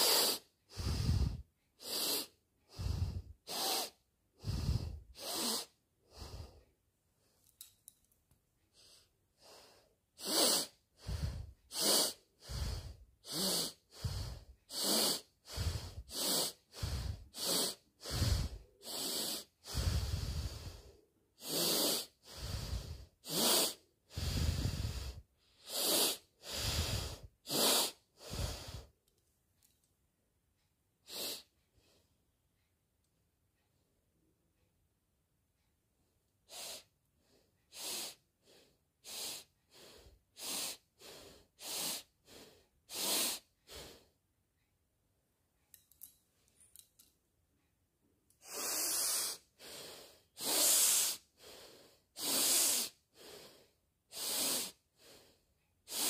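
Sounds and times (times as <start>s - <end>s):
woman sniffing through nose: 0.0s - 6.6s, 8.8s - 28.9s, 31.0s - 31.5s, 36.5s - 36.9s, 37.7s - 44.1s, 48.4s - 55.2s.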